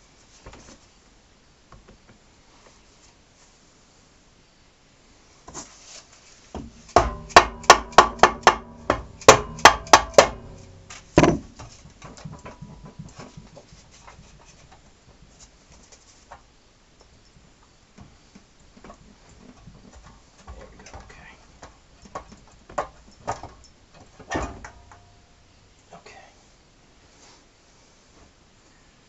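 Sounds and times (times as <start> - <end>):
dead blow hammer striking metal case: 6.6 - 12.9
light knocks and handling noise: 8.9 - 25.1.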